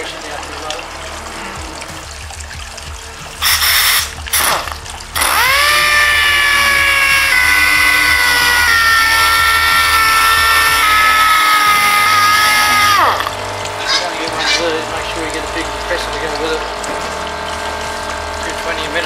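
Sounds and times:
air hissing: 3.4 - 13.3
sander high whine: 5.2 - 13.3.

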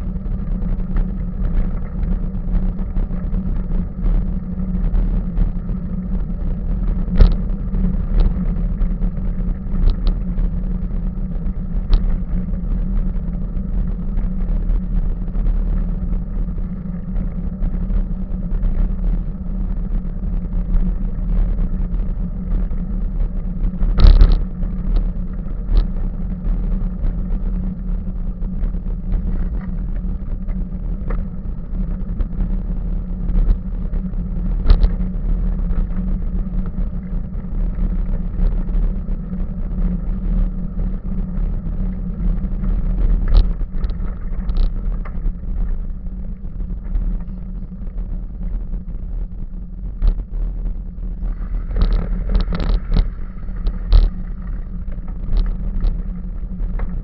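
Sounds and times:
bicycle tyres rumbling on gravel: 0.0 - 57.0.

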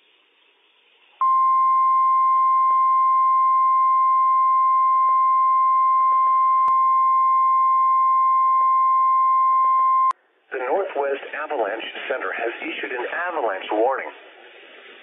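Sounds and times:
faint radio hiss: 0.0 - 1.2, 10.2 - 15.0.

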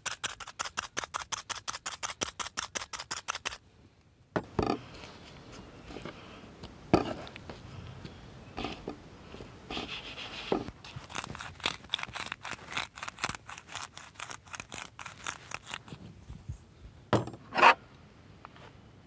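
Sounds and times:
salt grinder crunching: 10.8 - 15.9.

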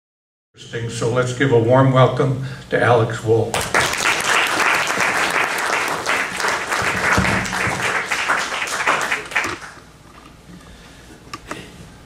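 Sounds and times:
audience applauding: 3.6 - 9.9.

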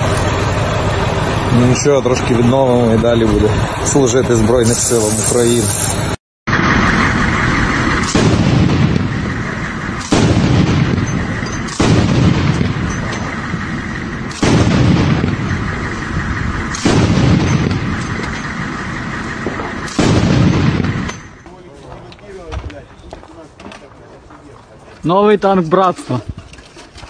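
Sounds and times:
heavy explosion blasts: 6.5 - 21.4.

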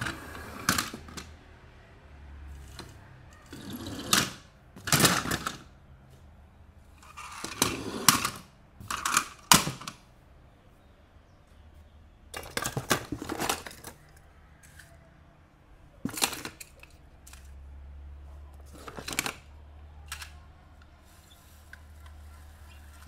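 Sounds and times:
plastic and cardboard rustling: 12.4 - 15.0.

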